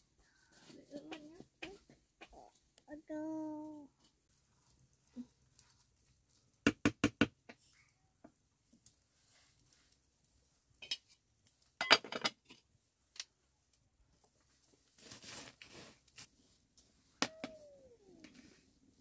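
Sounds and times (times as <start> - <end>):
scraping rustle: 14.6 - 17.0.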